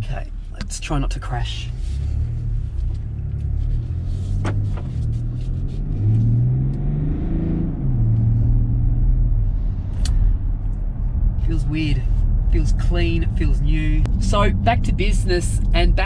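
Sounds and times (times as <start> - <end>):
car engine accelerating: 0.0 - 16.0.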